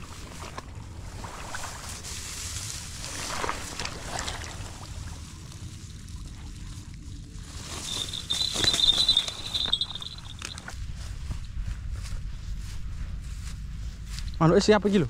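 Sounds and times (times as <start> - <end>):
shallow water sloshing: 0.0 - 10.7
rice stalks rustling: 0.0 - 14.4
steady low rumble: 0.0 - 15.0
handling noise: 7.4 - 10.9
high steady ringing tone: 7.5 - 11.2.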